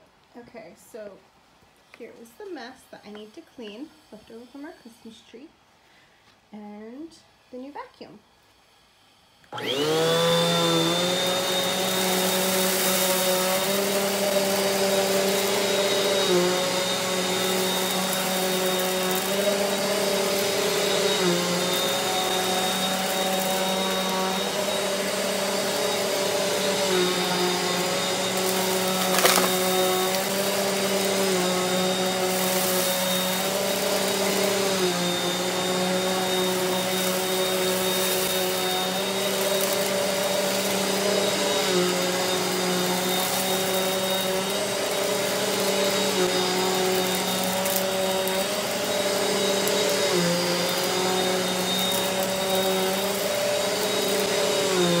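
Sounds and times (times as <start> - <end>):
vacuum cleaner motor hum: 8.2 - 55.0.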